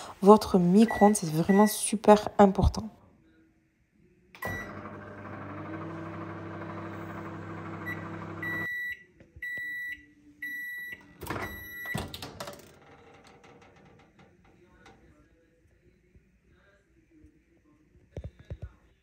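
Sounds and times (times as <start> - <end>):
microwave oven humming: 4.4 - 8.9.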